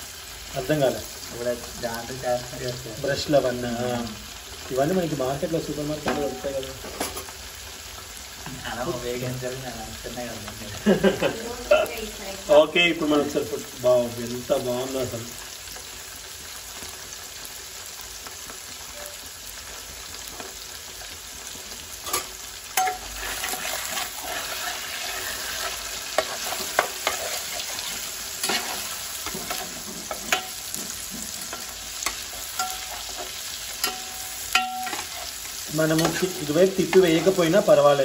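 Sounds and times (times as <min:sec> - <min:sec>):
fish sizzling in oil: 0:00.0 - 0:38.0
steel spatula scraping pan: 0:22.0 - 0:37.4.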